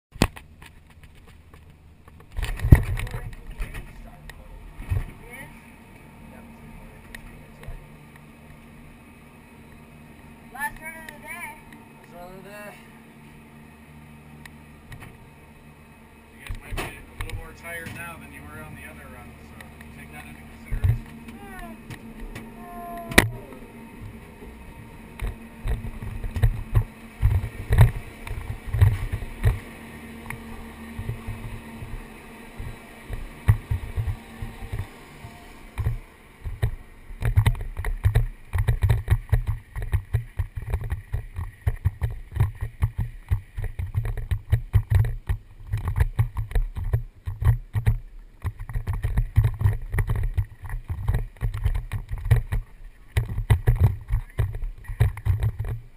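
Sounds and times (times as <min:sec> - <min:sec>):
faint steady hum: 0:00.2 - 0:55.9
mountain bike thuds and rumble: 0:25.2 - 0:29.7, 0:32.6 - 0:34.9, 0:35.8 - 0:55.9.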